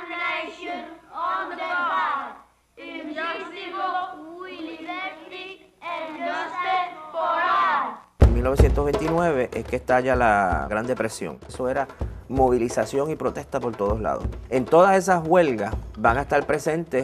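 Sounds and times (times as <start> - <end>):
children singing in unison: 0.0 - 8.0.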